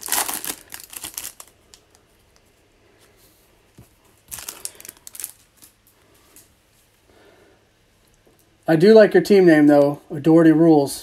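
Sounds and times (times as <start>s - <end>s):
plastic wrapper crinkling: 0.0s - 2.5s, 4.1s - 6.0s.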